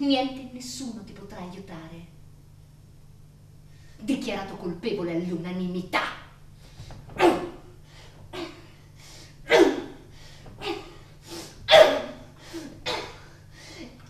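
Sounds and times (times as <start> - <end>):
woman gasping: 12.3 - 14.0.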